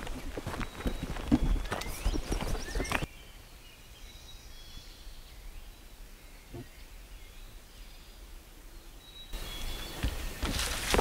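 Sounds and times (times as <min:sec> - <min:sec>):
faint bird chirps: 0:00.5 - 0:10.6
footsteps crunching through dry leaves: 0:09.4 - 0:11.0.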